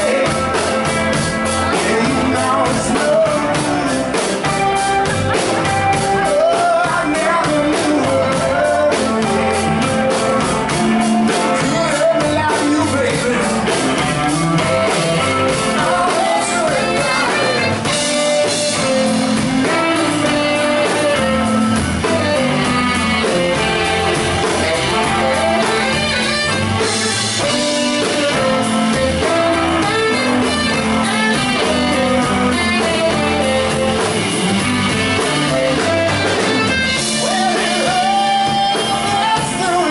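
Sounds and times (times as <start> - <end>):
drum kit: 0.0 - 39.9
electric guitar: 0.0 - 39.9
tenor saxophone melody: 13.5 - 39.8.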